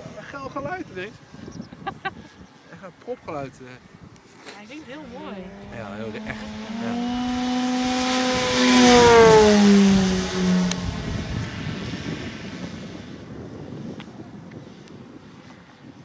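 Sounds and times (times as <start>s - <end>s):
model plane flying past: 5.0s - 16.0s.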